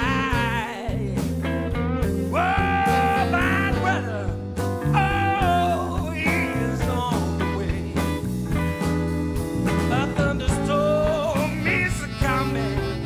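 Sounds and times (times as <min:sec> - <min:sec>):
blues band playing live: 0:00.0 - 0:13.0
electric guitar bending notes: 0:01.4 - 0:13.0.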